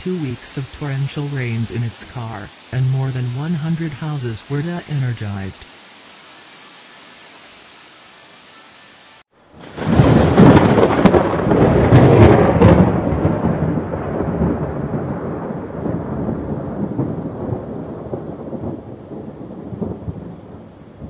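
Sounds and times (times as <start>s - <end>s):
rolling rumble of thunder: 9.5s - 21.0s
thunderclap with crackling: 9.5s - 21.0s.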